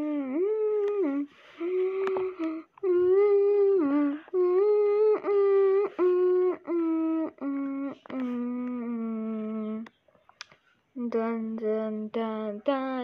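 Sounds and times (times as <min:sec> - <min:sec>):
person humming: 0:00.0 - 0:09.9.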